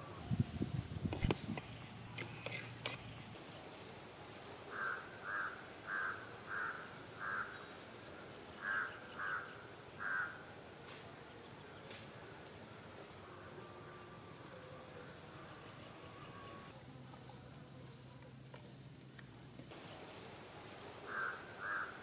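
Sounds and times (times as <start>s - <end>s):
crow cawing: 4.7s - 7.6s, 8.6s - 10.4s, 21.0s - 22.0s.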